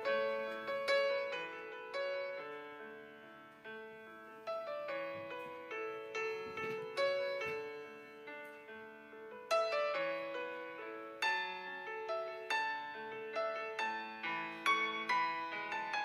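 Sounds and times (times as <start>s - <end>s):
gentle piano melody: 0.0s - 16.0s.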